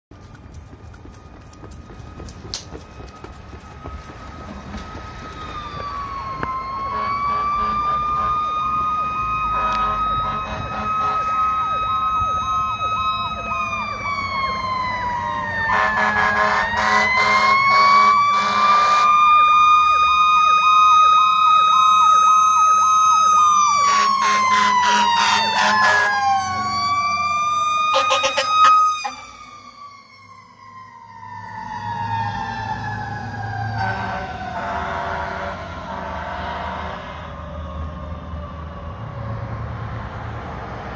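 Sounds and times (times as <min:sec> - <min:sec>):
fire engine sirens wailing: 0:00.2 - 0:40.9
pulsing siren tone: 0:02.0 - 0:39.6
harsh horn blasts: 0:06.9 - 0:08.5, 0:09.6 - 0:11.4, 0:15.7 - 0:19.1, 0:23.9 - 0:26.1, 0:27.9 - 0:29.2, 0:33.8 - 0:37.3.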